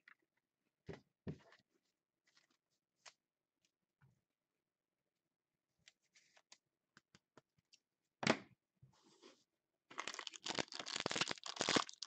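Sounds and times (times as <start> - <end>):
foil pack crinkling: 10.0 - 12.0.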